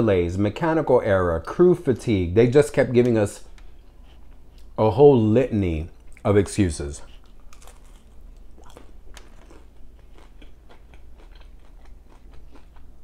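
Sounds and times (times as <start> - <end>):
person chewing crisp food: 7.0 - 13.0.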